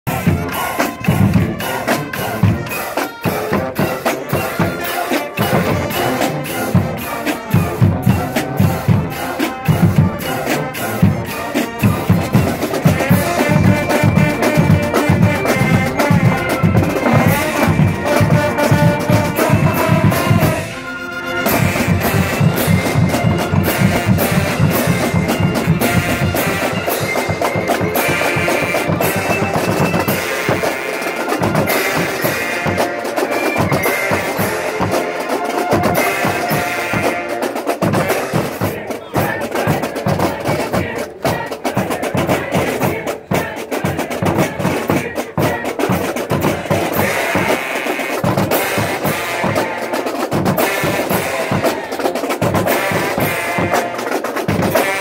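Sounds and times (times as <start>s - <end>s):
marching band playing: 0.0s - 55.0s
snare and bass drums: 0.1s - 20.8s, 21.4s - 55.0s
brass chords: 0.1s - 40.9s, 41.9s - 55.0s.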